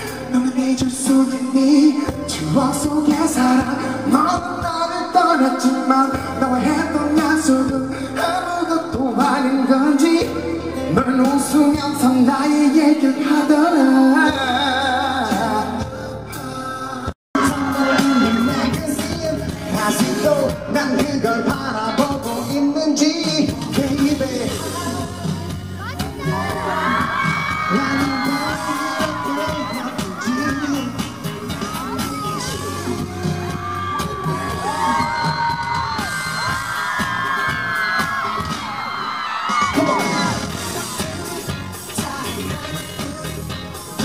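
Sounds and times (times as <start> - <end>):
man singing: 0.0 - 36.6, 39.7 - 44.0
live pop band playing: 0.0 - 44.0.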